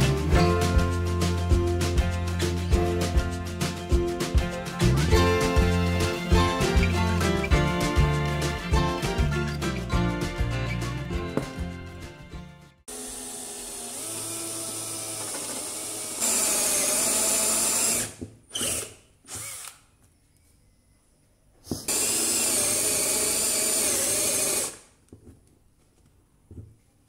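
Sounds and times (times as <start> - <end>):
cordless drill boring into wood: 12.9 - 19.9, 21.9 - 24.9.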